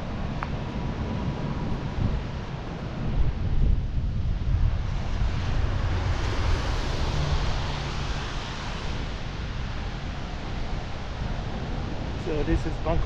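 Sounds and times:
traffic on wet pavement: 0.0s - 13.0s
wind buffeting microphone: 0.0s - 13.0s
rain hiss: 4.7s - 13.0s.

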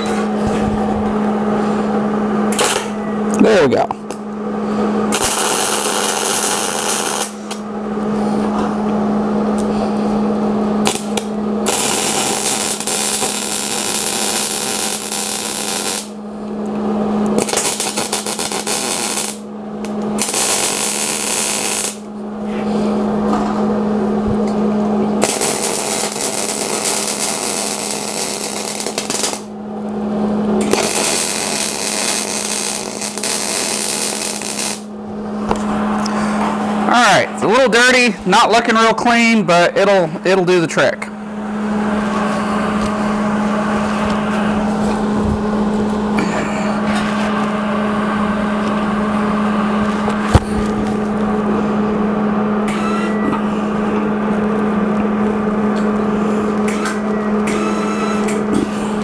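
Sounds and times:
steady hum: 0.0s - 59.0s
welder arc crackling: 5.1s - 7.6s, 10.8s - 22.1s, 25.2s - 30.0s, 30.6s - 36.2s.

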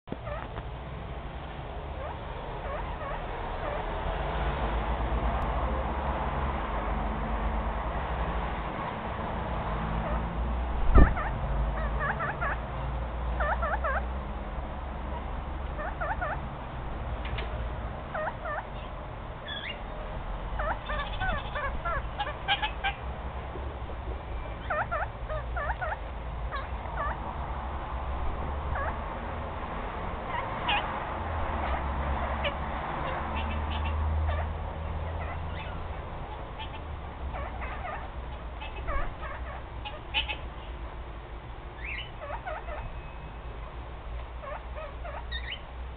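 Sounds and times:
parakeet chirping: 0.2s - 0.6s, 1.9s - 3.9s, 11.0s - 12.6s, 13.3s - 14.1s, 15.8s - 16.4s, 18.1s - 19.9s, 20.6s - 23.1s, 24.3s - 27.2s, 28.7s - 29.0s, 30.3s - 40.7s, 41.8s - 43.4s, 44.4s - 45.7s
sharp thump: 10.9s - 11.2s.

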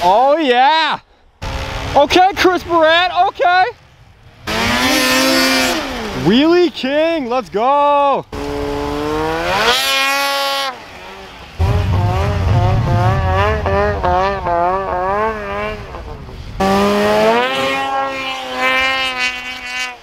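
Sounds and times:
snowmobile engine revving: 4.4s - 6.6s, 8.3s - 20.0s.

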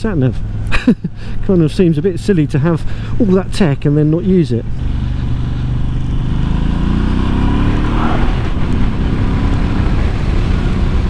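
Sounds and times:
wind noise: 7.4s - 11.0s.

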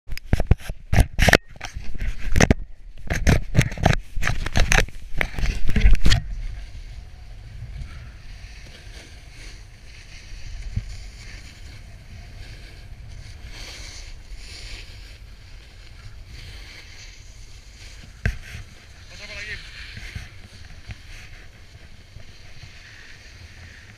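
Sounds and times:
wind buffeting microphone: 1.7s - 23.9s
snowboard sliding on snow: 4.9s - 23.9s.

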